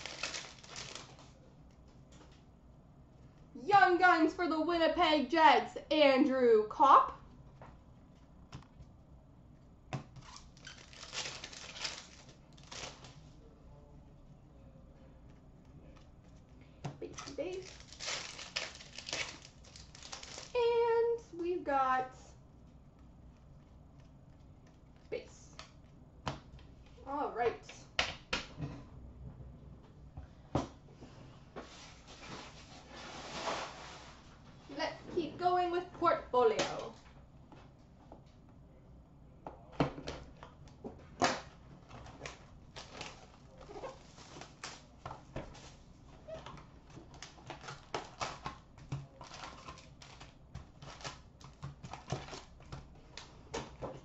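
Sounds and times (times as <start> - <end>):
card packs rustling: 0.0 - 1.4, 10.2 - 13.4, 17.1 - 20.6, 41.8 - 53.9.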